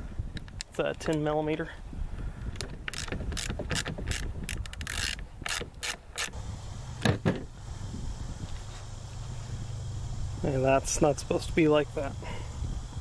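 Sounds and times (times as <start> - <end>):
ratchet wrench clicking: 2.9 - 6.4.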